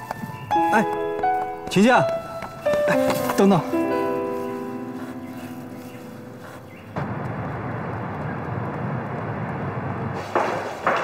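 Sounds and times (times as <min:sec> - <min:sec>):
piano chord: 0:00.0 - 0:07.0
traffic noise: 0:00.0 - 0:11.0
sharp knocks: 0:10.2 - 0:11.0.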